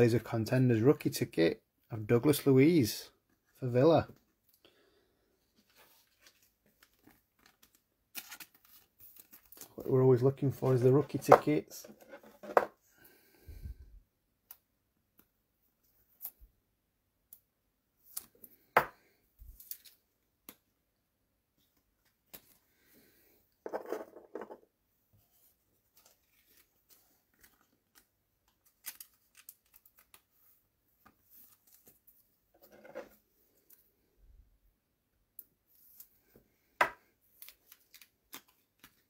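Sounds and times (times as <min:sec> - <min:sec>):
card pack wrapper crinkling: 0:06.0 - 0:09.9, 0:27.3 - 0:30.3, 0:37.4 - 0:39.0
cards clicking and rustling: 0:26.0 - 0:30.3, 0:37.3 - 0:39.0.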